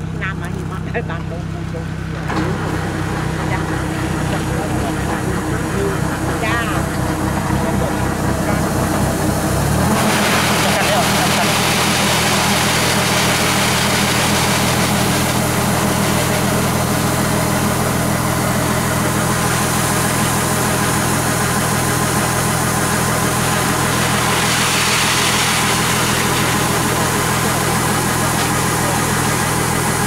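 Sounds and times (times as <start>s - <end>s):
diesel engine running: 0.0s - 30.0s
grain pouring from auger hiss: 8.1s - 30.0s.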